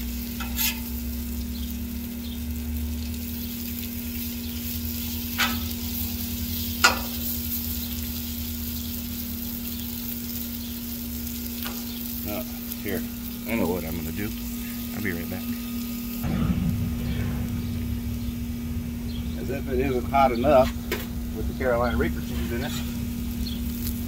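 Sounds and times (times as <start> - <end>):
food sizzling on a griddle: 0.0 - 16.3, 18.2 - 24.0
steady low hum: 11.0 - 24.0.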